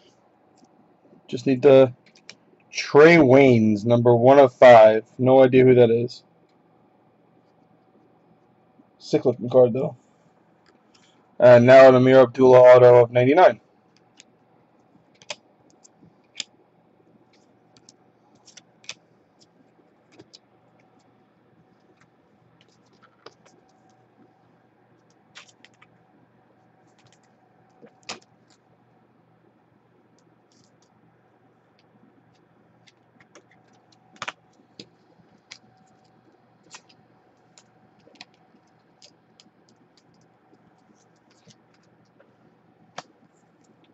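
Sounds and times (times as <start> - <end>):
faint clicks and taps: 0.0 - 1.3, 2.0 - 2.7, 10.6 - 11.2, 13.9 - 28.8, 29.4 - 31.0, 31.6 - 43.9
low steady hum: 0.0 - 43.9.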